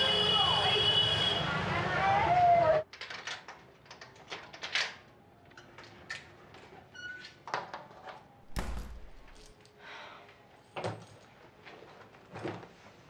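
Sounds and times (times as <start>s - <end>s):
small clicks and rattles: 2.9s - 6.4s
door opening: 8.5s - 9.5s
heavy low thud: 8.5s - 9.5s.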